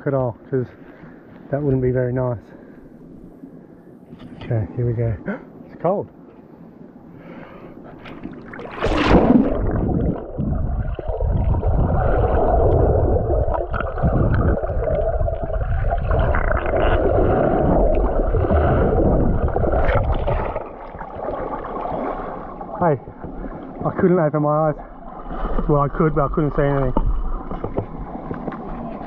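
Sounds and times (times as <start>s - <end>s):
muffled underwater rumble and gurgle: 6.4s - 29.0s
camera splashing into water: 8.1s - 15.0s.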